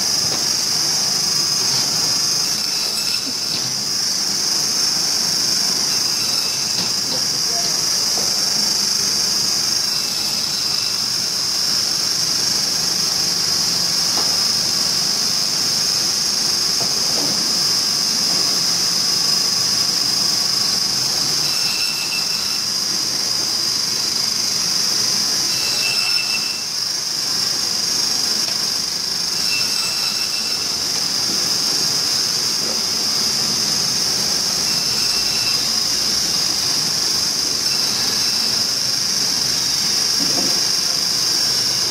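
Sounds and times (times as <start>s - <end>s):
band saw whining: 0.9s - 11.6s, 19.4s - 32.0s, 32.6s - 41.5s
short saw squeals: 2.2s - 3.5s, 5.8s - 6.8s, 9.8s - 11.1s, 21.4s - 22.8s, 25.4s - 26.8s, 29.3s - 30.8s, 34.6s - 36.0s, 37.6s - 38.7s.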